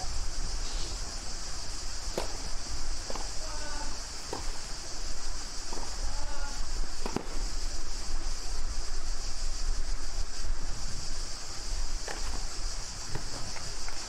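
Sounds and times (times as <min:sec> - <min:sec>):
insects droning: 0:00.0 - 0:14.0
short knocks: 0:02.1 - 0:04.7, 0:05.7 - 0:07.4.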